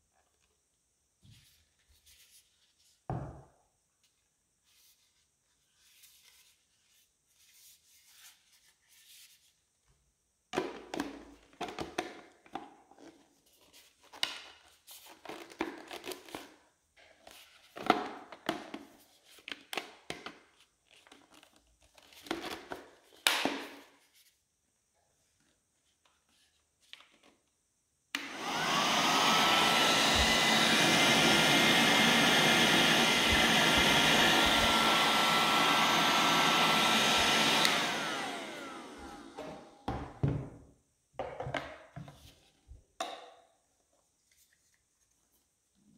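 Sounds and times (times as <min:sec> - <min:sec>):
handheld vacuum motor whine: 0:28.1 - 0:40.1.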